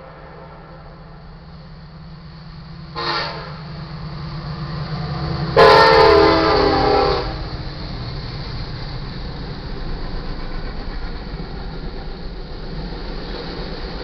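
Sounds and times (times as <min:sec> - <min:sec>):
low rumble of train: 0:00.0 - 0:14.0
locomotive air horn blasts: 0:02.9 - 0:03.7, 0:05.6 - 0:07.5.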